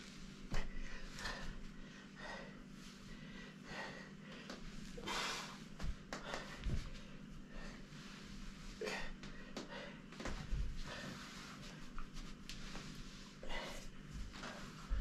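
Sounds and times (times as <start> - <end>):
person breathing: 0.5 - 12.0, 12.6 - 15.0
soft low thumps: 5.7 - 7.7, 9.2 - 11.0.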